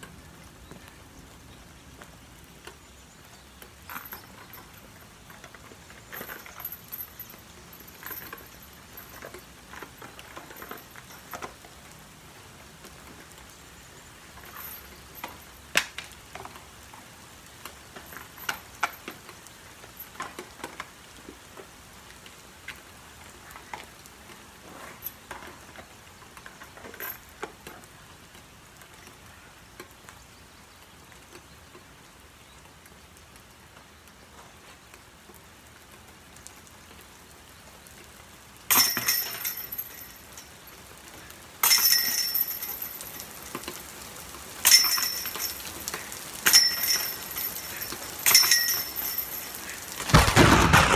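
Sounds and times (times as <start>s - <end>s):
metal chains jangling: 3.8s - 11.7s, 14.3s - 15.6s, 18.0s - 19.2s, 38.7s - 40.8s, 41.6s - 43.8s, 44.6s - 50.2s
light clinks of discs: 38.7s - 50.9s.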